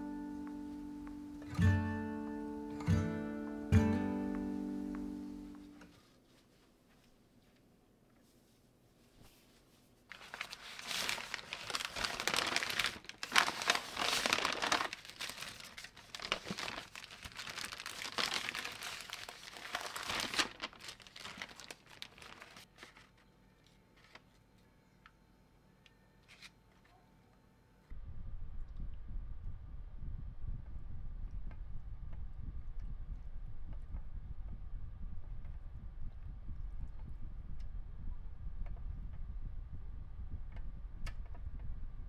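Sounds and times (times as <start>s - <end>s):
paper crinkling and rustling: 10.1s - 24.4s, 26.2s - 26.9s.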